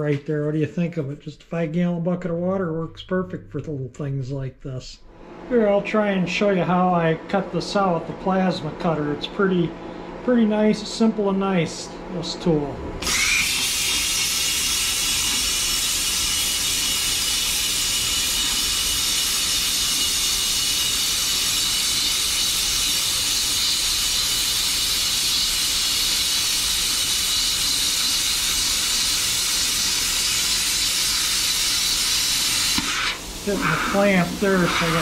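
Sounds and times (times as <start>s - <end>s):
plasma cutter hissing: 13.0s - 35.0s.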